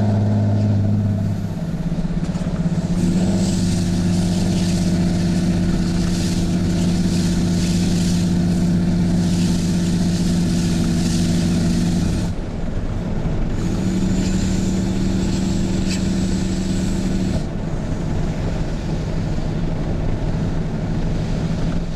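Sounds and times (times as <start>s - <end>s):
diesel engine drone: 0.0s - 21.9s.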